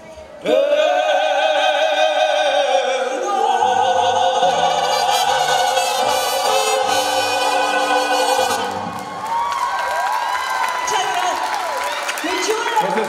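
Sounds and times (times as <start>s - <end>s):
man and woman singing in harmony: 0.4s - 8.9s
mariachi band: 4.1s - 9.6s.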